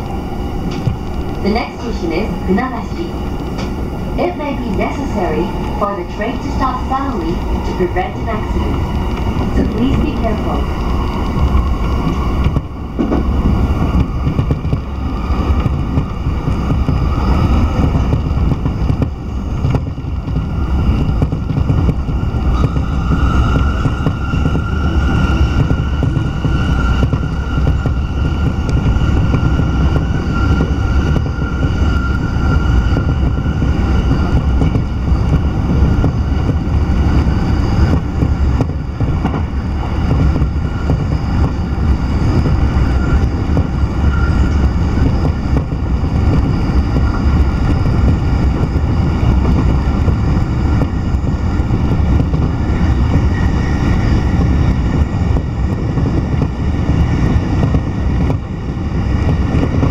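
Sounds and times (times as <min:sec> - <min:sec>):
train wheels rumbling on rails: 0:00.0 - 0:59.9.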